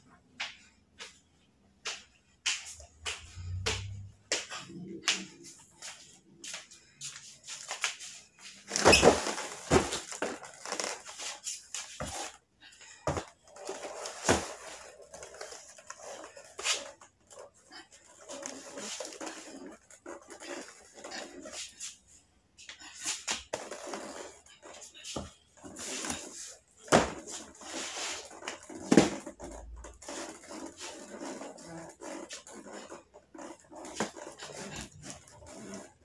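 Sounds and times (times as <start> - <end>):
cardboard boxes knocking and scuffing: 8.6 - 12.4, 14.0 - 14.8, 23.2 - 29.3
heavy box thud with scrape: 8.7 - 10.3.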